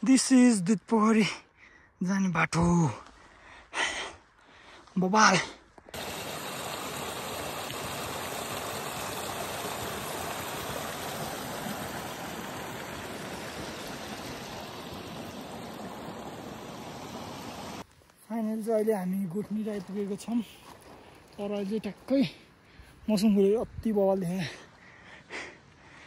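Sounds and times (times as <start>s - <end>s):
stream running over rocks: 5.0s - 22.2s.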